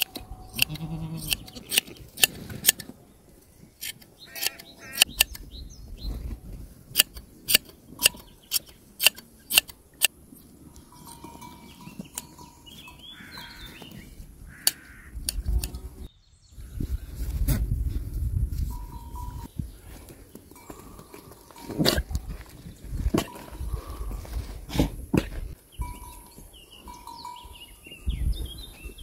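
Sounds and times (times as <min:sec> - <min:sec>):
shears snipping fleece: 0:00.0 - 0:02.9
sheep bleating: 0:00.4 - 0:01.8.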